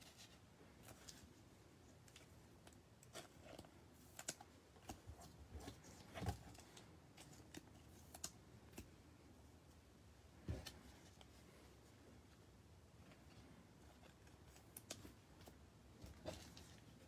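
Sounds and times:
plastic sleeves rustling: 10.4 - 17.0.

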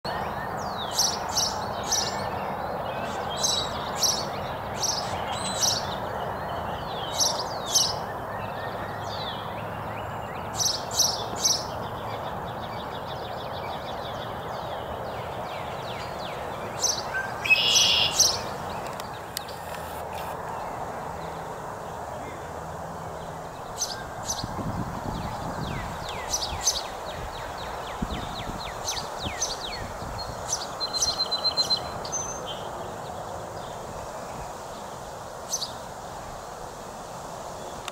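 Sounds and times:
steady background noise: 0.1 - 37.9
rapid bird twitter: 15.6 - 20.4, 25.2 - 32.7
finches calling: 15.9 - 20.4.

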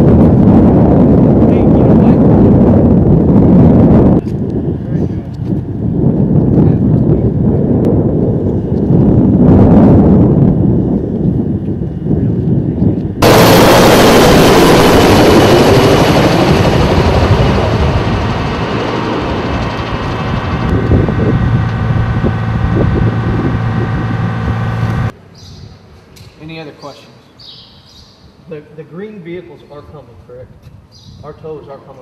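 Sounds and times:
armoured vehicle engine droning: 13.2 - 25.1
low rumble: 13.2 - 25.1.

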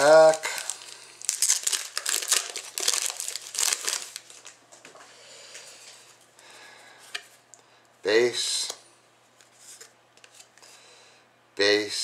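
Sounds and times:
foil wrapper crinkling and tearing: 0.0 - 4.6.

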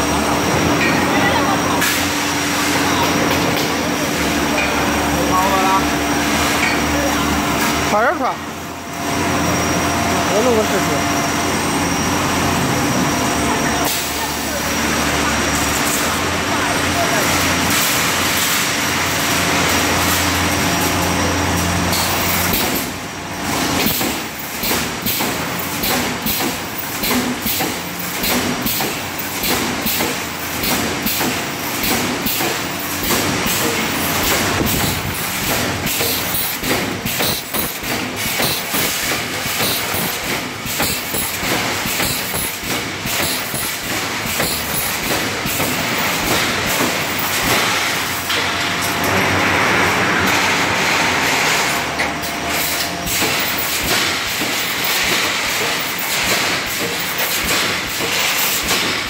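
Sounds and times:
welding machine humming: 0.0 - 59.0
mesh welding machine clatter: 13.6 - 59.0.

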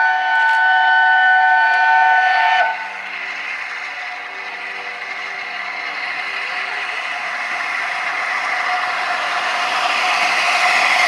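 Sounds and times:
steam locomotive whistle: 0.0 - 3.0
steam locomotive rushing: 0.0 - 11.0.

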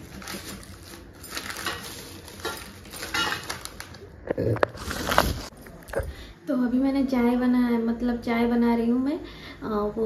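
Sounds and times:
dishes and utensils clinking: 0.0 - 3.9.

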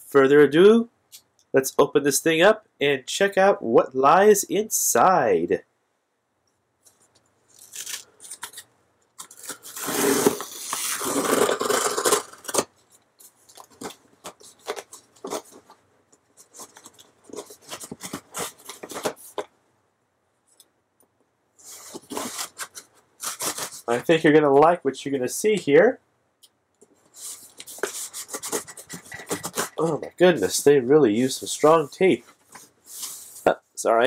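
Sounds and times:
knife cutting packing tape: 7.6 - 8.6, 9.2 - 12.7, 16.6 - 19.4, 21.9 - 23.9, 27.6 - 29.9.

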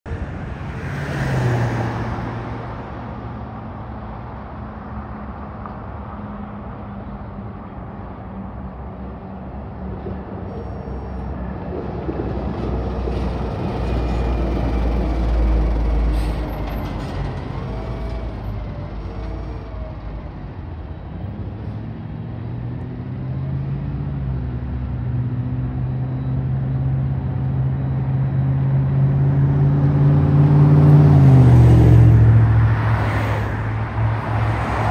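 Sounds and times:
diesel truck engine accelerating: 9.8 - 34.9.

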